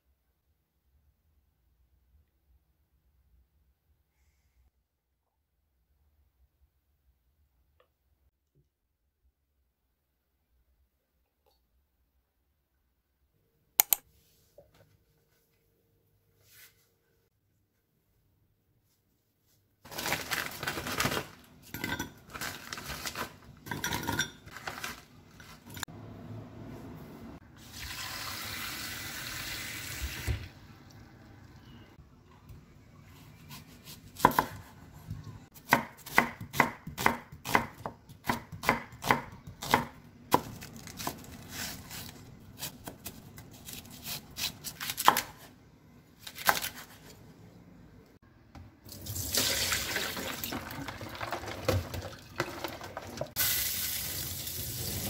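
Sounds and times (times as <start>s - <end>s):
knife slicing onion on board: 33.4s - 34.8s, 35.6s - 45.5s.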